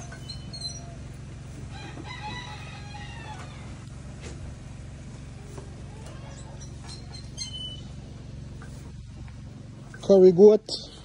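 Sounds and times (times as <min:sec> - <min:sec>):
steady low hum: 0:00.0 - 0:11.0
wavering crow-like call: 0:01.8 - 0:03.8.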